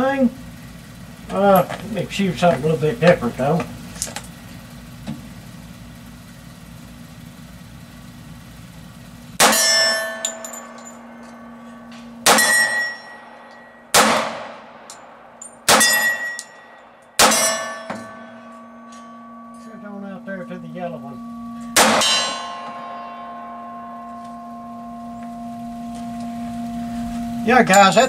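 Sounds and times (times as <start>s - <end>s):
pistol shots: 9.4s - 10.0s, 12.2s - 13.0s, 13.9s - 14.8s, 15.6s - 16.4s, 17.2s - 17.8s, 21.8s - 22.4s
steel target ringing: 9.4s - 28.0s.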